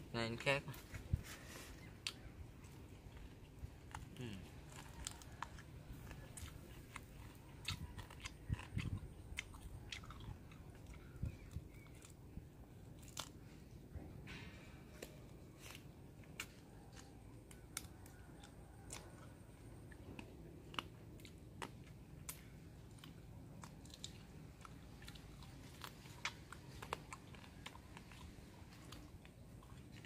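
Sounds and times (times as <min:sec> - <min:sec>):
close chewing and crunching: 0:00.0 - 0:30.0.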